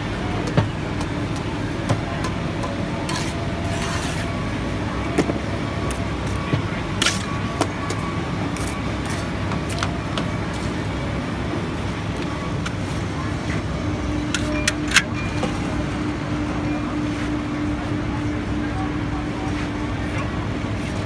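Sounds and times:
construction machinery rumble: 0.0s - 21.0s.

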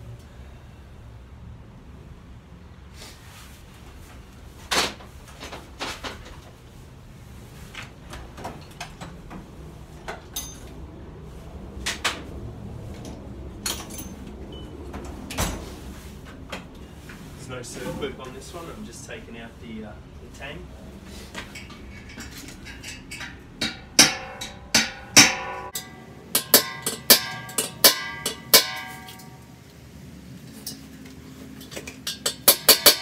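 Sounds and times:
tools knocking and clattering: 8.4s - 10.8s, 13.0s - 15.6s, 21.4s - 29.5s, 30.5s - 33.0s.

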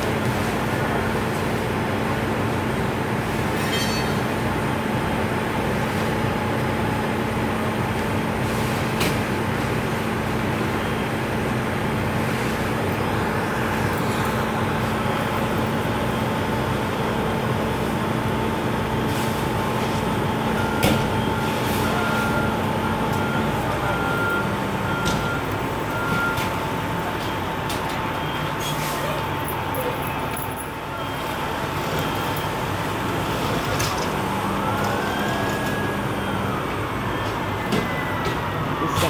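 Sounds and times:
fire engine running: 0.0s - 39.0s.

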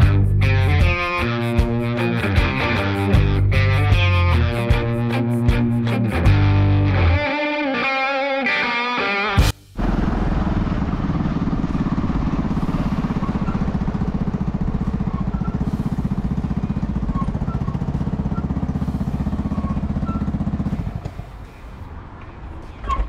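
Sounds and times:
moped engine puttering: 0.0s - 5.8s, 9.4s - 21.8s.

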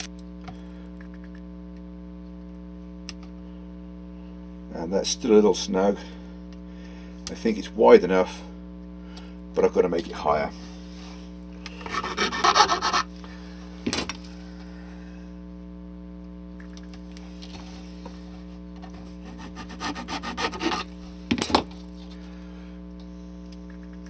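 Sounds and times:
electrical hum: 0.0s - 24.0s
file rasping on plastic: 11.8s - 13.1s, 19.2s - 20.9s.

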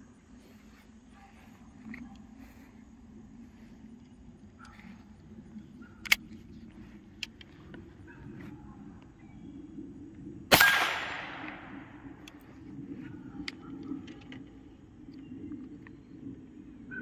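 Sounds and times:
rifle action clicking: 6.0s - 6.4s
rifle shot: 10.5s - 12.1s.

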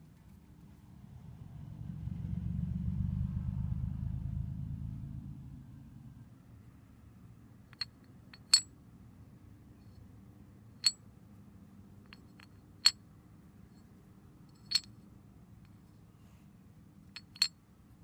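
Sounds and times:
metal weights clinking: 7.8s - 8.7s, 14.5s - 14.9s.

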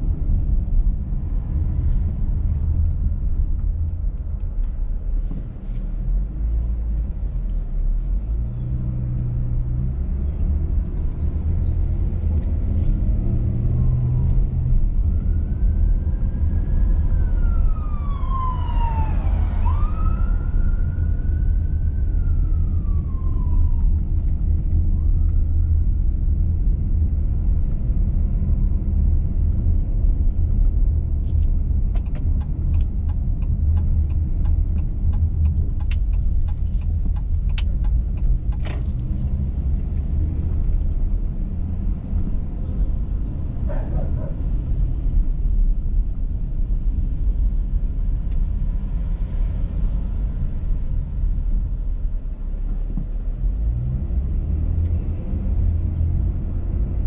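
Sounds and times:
car driving rumble: 0.0s - 57.0s
siren wailing: 13.7s - 24.1s
light sharp ticks: 31.3s - 39.2s.

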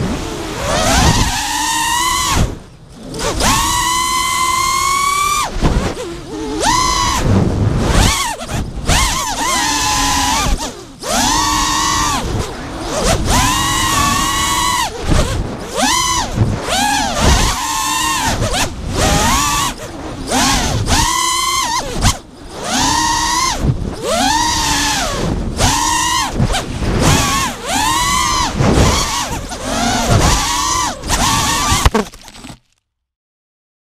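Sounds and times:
drone motors whining: 0.0s - 32.7s
wind rush: 5.4s - 21.1s.

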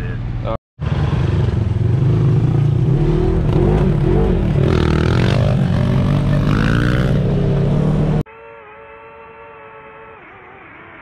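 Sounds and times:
dirt bike engine revving: 0.8s - 8.2s.

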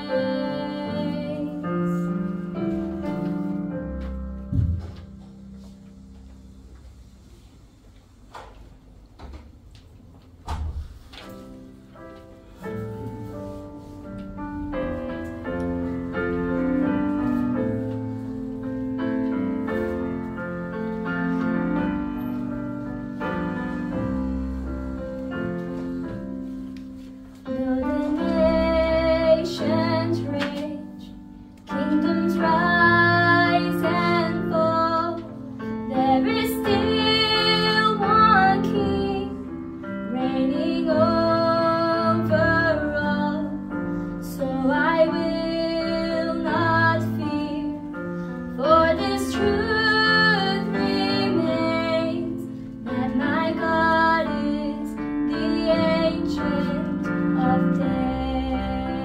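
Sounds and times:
woman singing: 0.0s - 2.0s, 27.4s - 39.5s, 40.1s - 47.9s, 48.6s - 59.0s
piano accordion: 11.6s - 59.0s.

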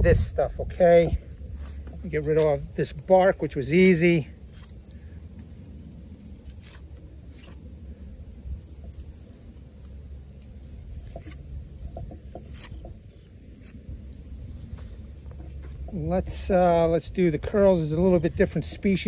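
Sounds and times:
insects trilling: 0.0s - 19.0s
knife scraping wood: 1.5s - 3.1s, 3.8s - 7.8s, 8.7s - 16.0s.

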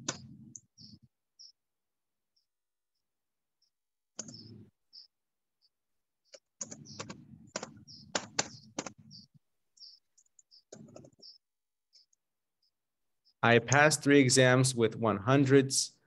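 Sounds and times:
computer keyboard typing: 6.3s - 9.0s.

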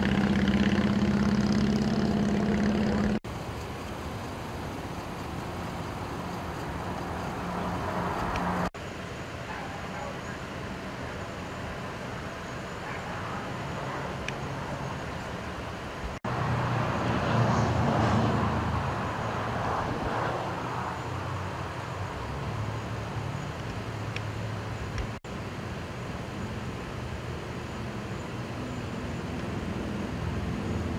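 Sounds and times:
vehicle engine idling: 0.0s - 16.4s
road traffic: 0.0s - 30.9s.

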